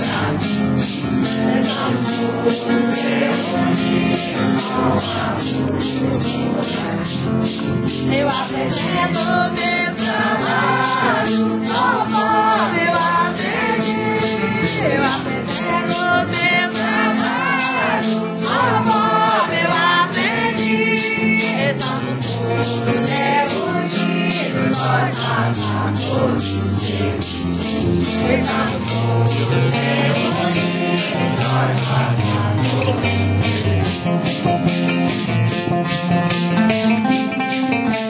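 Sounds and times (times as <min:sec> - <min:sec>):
women singing a hymn in unison: 0:00.0 - 0:00.5, 0:01.4 - 0:05.4, 0:08.1 - 0:27.3, 0:28.1 - 0:33.0
maracas shaking: 0:00.0 - 0:38.0.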